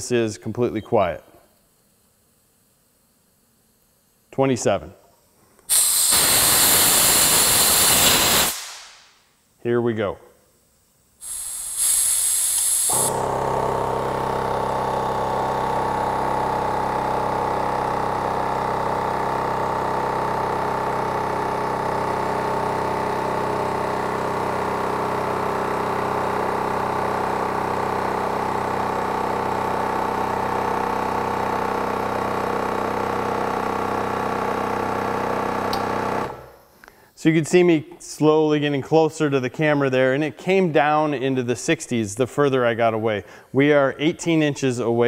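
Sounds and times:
air compressor running: 5.4 - 9.2, 11.2 - 37.1, 43.2 - 43.8
brief air hiss: 5.6 - 9.1, 11.2 - 13.2.

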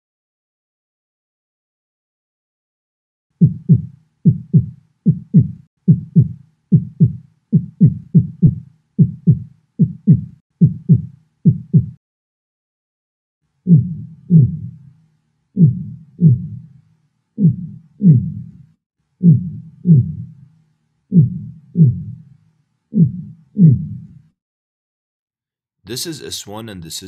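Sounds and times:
heartbeat thumps: 3.4 - 12.0, 13.7 - 14.8, 15.6 - 16.7, 17.4 - 18.5, 19.2 - 20.3, 21.1 - 22.2, 23.0 - 24.1.

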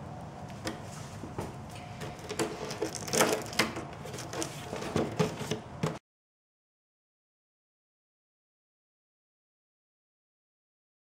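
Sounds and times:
clicks and knocks of handling: 1.4 - 6.0.

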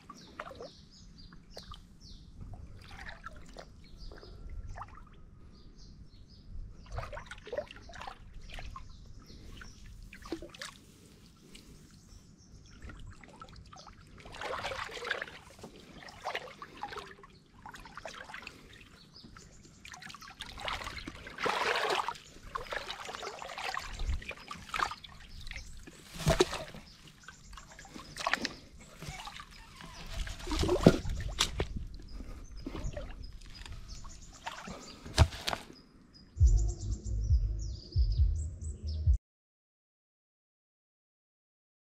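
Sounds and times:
water sloshing and splashing: 0.0 - 0.8, 1.4 - 5.3, 6.8 - 11.8, 12.7 - 35.8.

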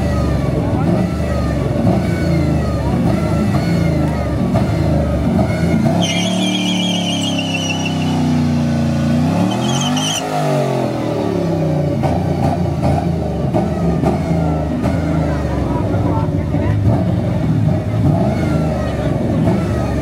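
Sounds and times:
car engines revving: 0.0 - 20.0
high-pitched warbling squeals: 5.9 - 8.4, 9.4 - 10.2.

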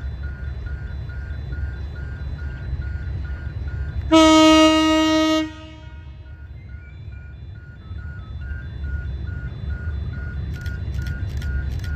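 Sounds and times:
crossing warning bell dinging: 0.0 - 11.9
train horn blast: 4.1 - 6.2.

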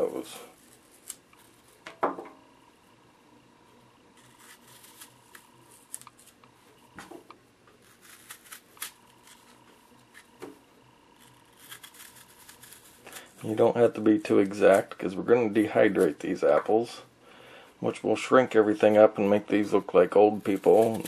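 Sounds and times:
knife slicing into apple: 7.8 - 10.4.

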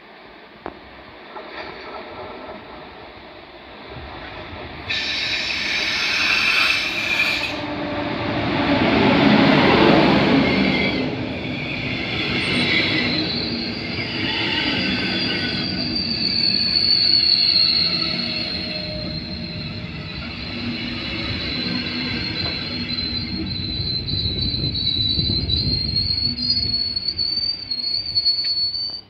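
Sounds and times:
train passing at speed: 0.0 - 28.6
wheels and rails whine: 0.0 - 29.0
loud hiss with shrill tones: 4.9 - 7.6, 11.5 - 29.0.

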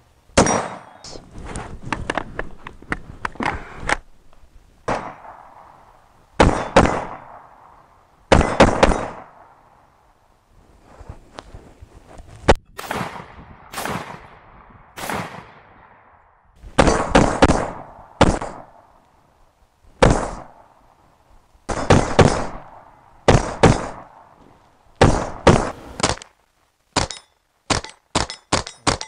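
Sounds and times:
rifle shots with echo: 0.4 - 1.1, 4.9 - 5.8, 6.4 - 9.7, 12.8 - 16.2, 16.8 - 18.9, 20.0 - 20.7, 21.7 - 24.3, 25.0 - 26.2.

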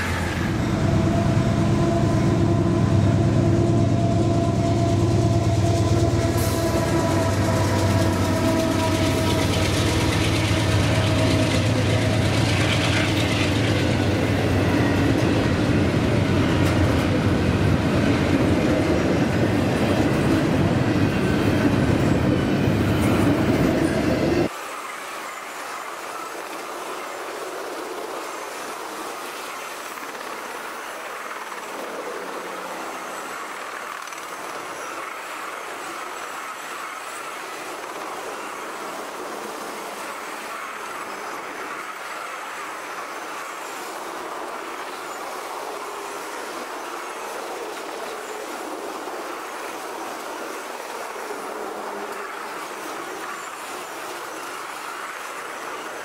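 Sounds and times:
freight train rumbling past: 0.0 - 56.0
train wheel clatter: 3.9 - 24.8.

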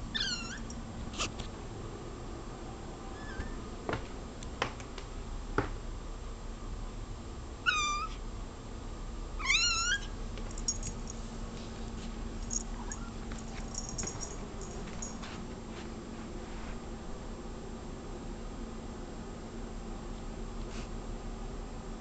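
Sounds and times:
cat meowing squeakily: 0.1 - 0.7, 3.1 - 3.6, 7.6 - 8.2, 9.4 - 10.2.

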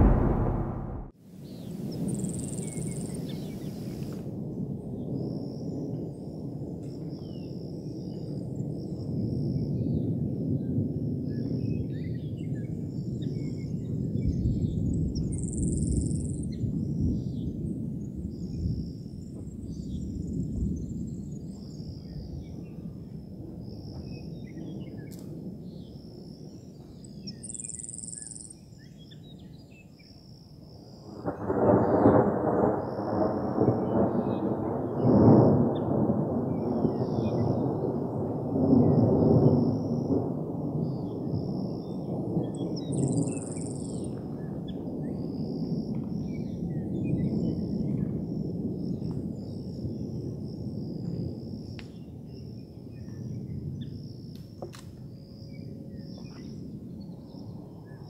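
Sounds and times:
thunder clap: 0.0 - 1.2
thunder rumbling: 0.0 - 1.2, 31.2 - 42.9.

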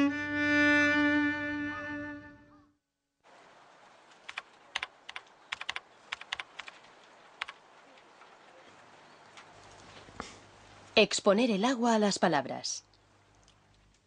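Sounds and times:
low room hiss: 0.0 - 14.0
keyboard key clicks: 4.3 - 6.8.

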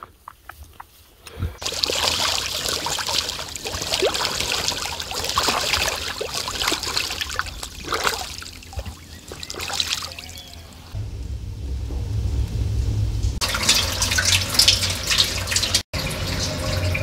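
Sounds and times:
duck splashing water: 1.6 - 11.0, 13.4 - 16.8.

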